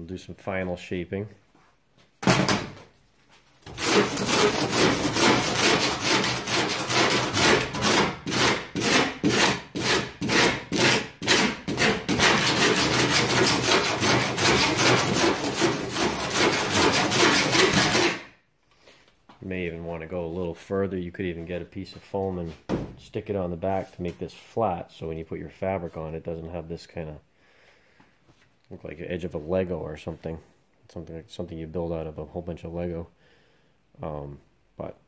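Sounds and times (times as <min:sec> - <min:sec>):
hand rasp shaving foam board: 0:03.7 - 0:18.3.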